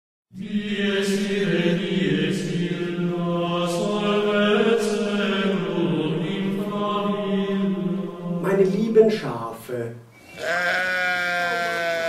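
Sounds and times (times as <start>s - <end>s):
choir holding long notes: 0.3s - 8.8s.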